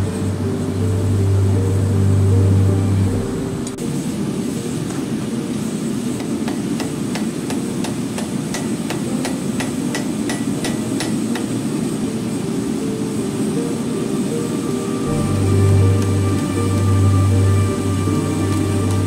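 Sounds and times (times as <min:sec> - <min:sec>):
low rumble: 0:00.0 - 0:04.7, 0:15.0 - 0:19.0
hammer striking steel on anvil: 0:06.2 - 0:11.5.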